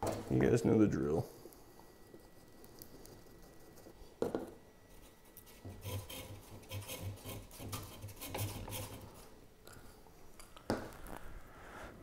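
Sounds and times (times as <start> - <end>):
stick scraping around cup: 5.0 - 9.2.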